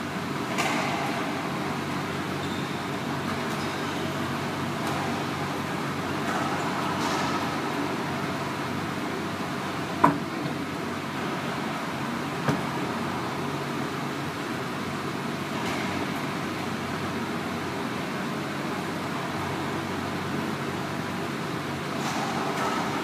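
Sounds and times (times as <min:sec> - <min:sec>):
steady background hum: 0:00.0 - 0:23.0.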